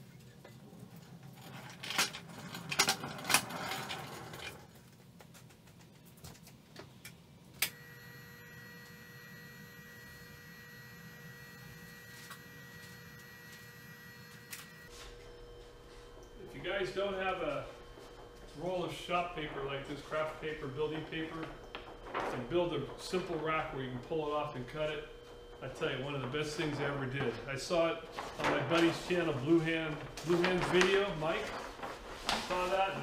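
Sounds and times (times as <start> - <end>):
electrical hum with high whine: 0.0 - 33.0.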